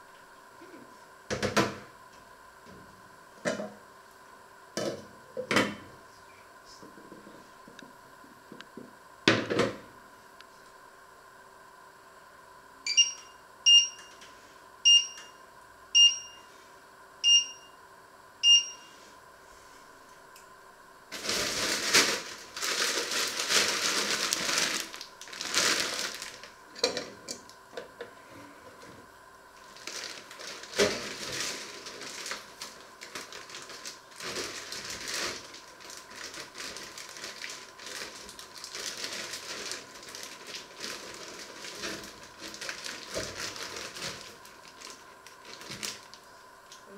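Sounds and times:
short electronic beeps: 12.9s - 14.1s
plastic bag crinkling: 21.1s - 26.7s, 29.6s - 46.3s.

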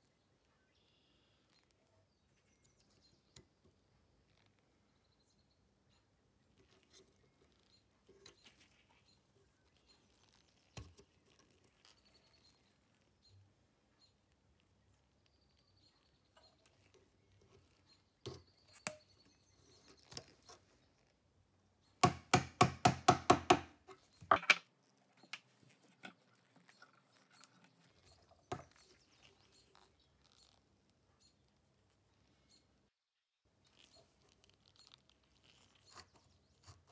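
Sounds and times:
small metallic clicks and scrapes: 6.5s - 13.4s, 23.8s - 31.6s, 33.6s - 36.9s.

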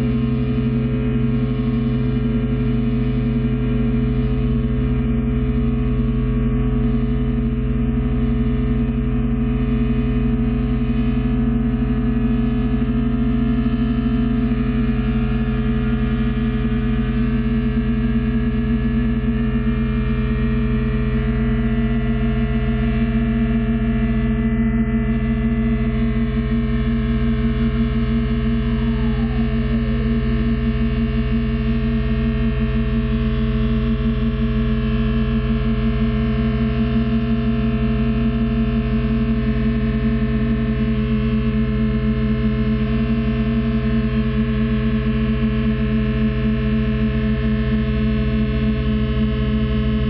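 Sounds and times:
electric guitar drone: 0.0s - 50.0s
faint high gliding tone: 27.8s - 30.7s.

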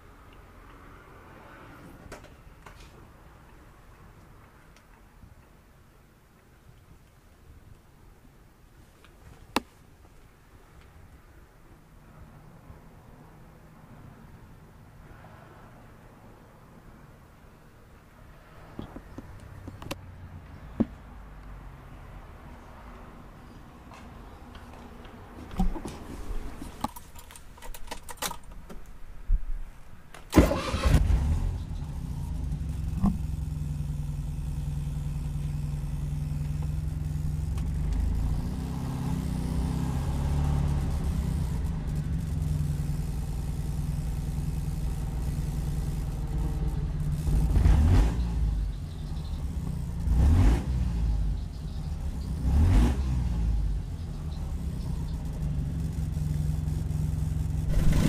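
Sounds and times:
car engine starting and idling: 30.2s - 58.0s
engine revving: 30.3s - 58.0s.

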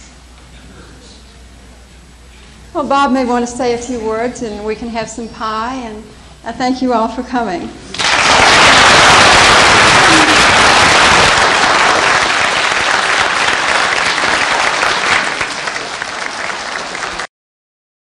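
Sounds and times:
audience applauding: 7.9s - 17.3s.

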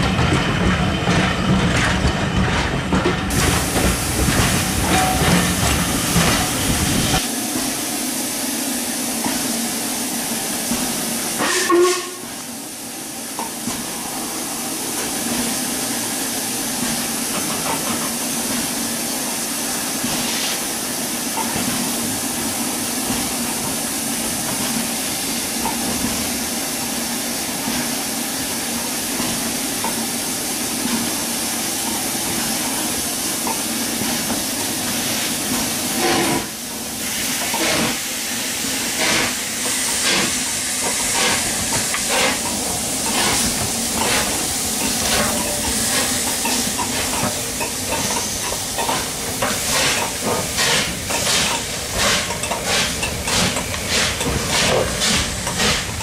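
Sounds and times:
steam locomotive exhaust beats: 0.0s - 56.0s
steam hissing from drain cocks: 27.8s - 56.0s.

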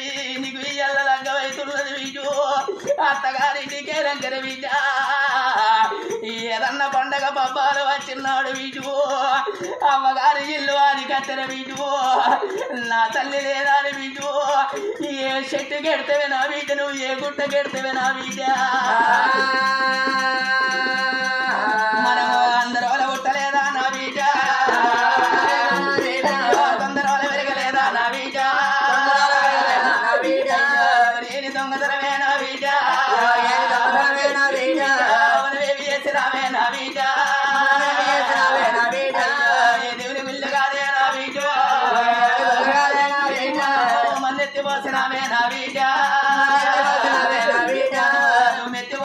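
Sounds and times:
person singing folk narrative: 0.0s - 49.0s
hand drum strokes: 17.5s - 31.4s.

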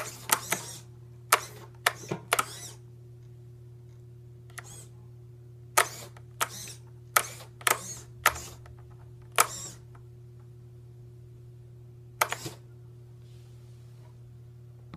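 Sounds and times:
suspension servo bursts: 0.0s - 2.8s, 5.8s - 8.6s.

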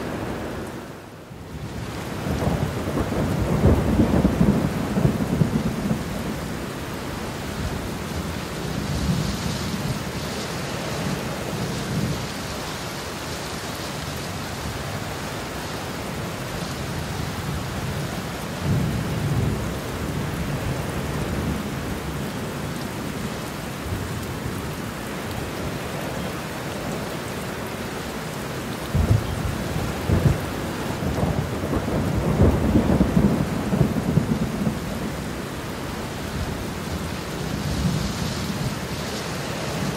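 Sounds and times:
rain hissing: 0.0s - 39.9s
thunder rumbling: 1.7s - 10.2s, 28.8s - 39.0s.

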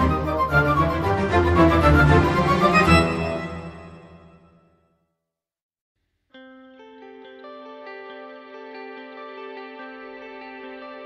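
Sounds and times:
background music: 0.0s - 4.8s.

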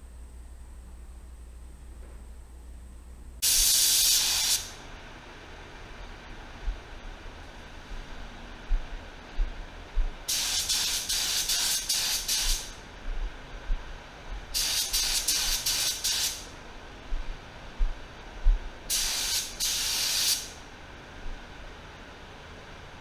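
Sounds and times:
spray gun air hiss: 3.4s - 4.8s, 10.3s - 12.8s, 14.5s - 16.5s, 18.9s - 20.6s.

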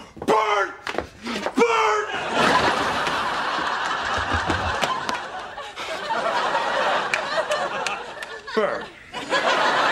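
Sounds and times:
studio audience laughing: 2.1s - 9.9s.

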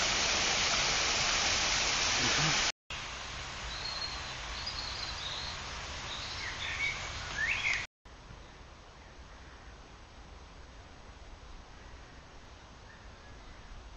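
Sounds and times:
steady outdoor hiss: 0.0s - 13.9s
small birds chirping: 3.6s - 7.9s.

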